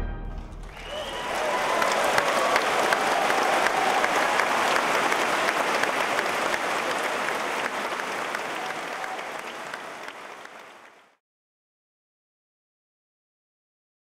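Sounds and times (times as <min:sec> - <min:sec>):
audience applauding: 0:00.6 - 0:11.2.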